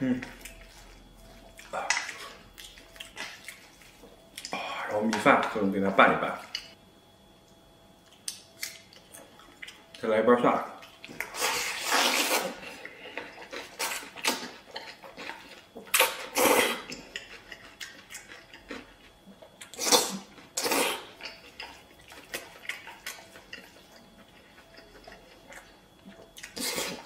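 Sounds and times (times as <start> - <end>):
chewing: 0.1 - 4.6, 8.0 - 10.0, 10.8 - 27.0
noodles being slurped: 11.3 - 12.6.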